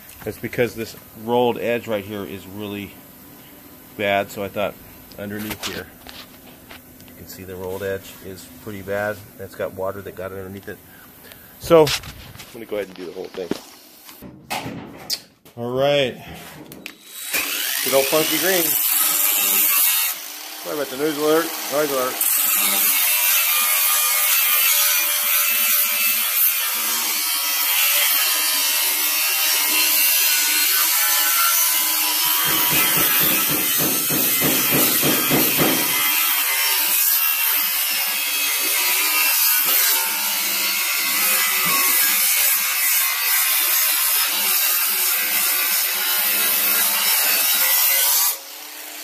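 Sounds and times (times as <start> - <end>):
angle grinder grinding steel: 16.9 - 49.0.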